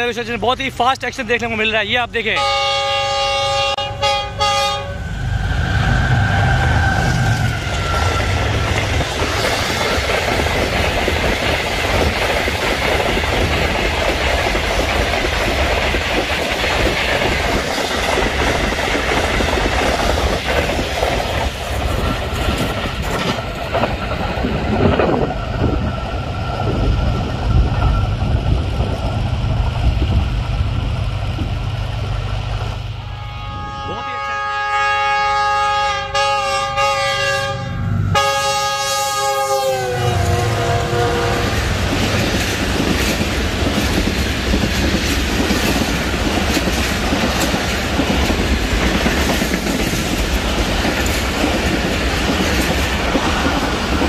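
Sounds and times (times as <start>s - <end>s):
train wheels rushing on rails: 0.0s - 36.2s, 36.9s - 54.0s
train horn: 2.4s - 8.8s, 33.0s - 41.7s.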